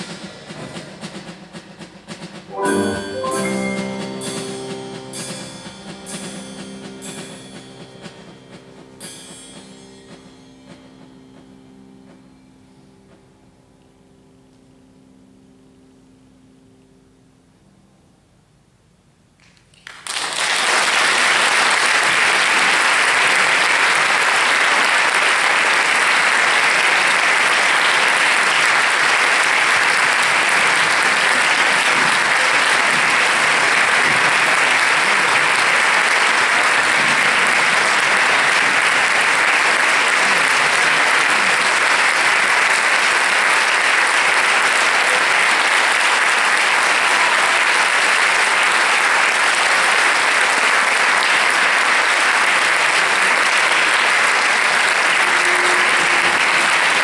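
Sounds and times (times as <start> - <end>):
audience applauding: 2.5 - 8.4, 19.4 - 57.0.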